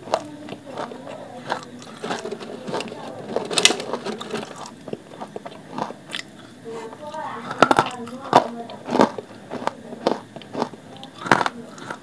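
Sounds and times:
clay lumps crunching when chewed: 0:00.0 - 0:12.0.

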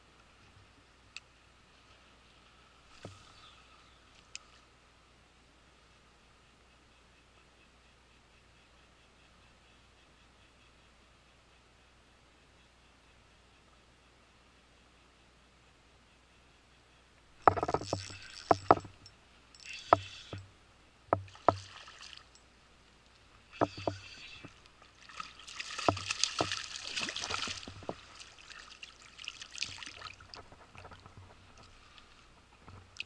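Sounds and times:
sharp clicks and knocks: 0:17.4 - 0:20.5, 0:21.1 - 0:21.7, 0:23.5 - 0:24.6, 0:25.8 - 0:26.6
water splashing and sloshing: 0:17.4 - 0:20.5, 0:21.2 - 0:22.4, 0:23.1 - 0:33.0.

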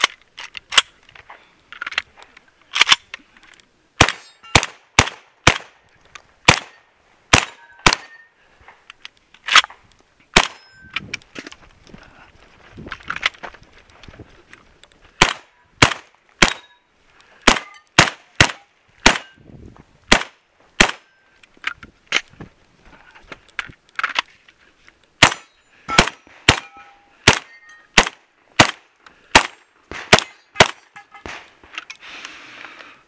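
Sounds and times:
shotgun shots: 0:04.0 - 0:05.8, 0:06.5 - 0:08.2, 0:10.4 - 0:10.6, 0:15.2 - 0:16.7, 0:17.4 - 0:19.4, 0:20.1 - 0:21.1, 0:25.2 - 0:31.5.

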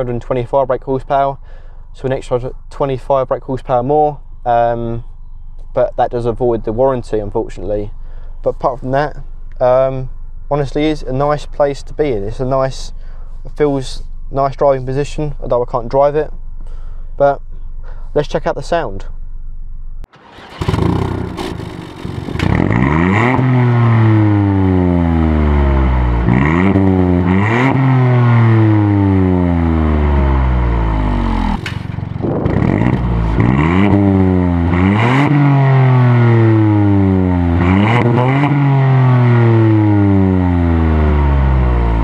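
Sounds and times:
car engine revving: 0:20.1 - 0:42.0.

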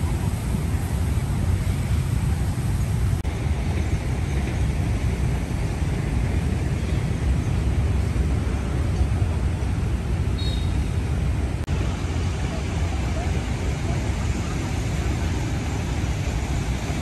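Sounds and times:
hiss: 0:00.0 - 0:07.3, 0:11.8 - 0:17.0
low outdoor rumble: 0:00.0 - 0:17.0.

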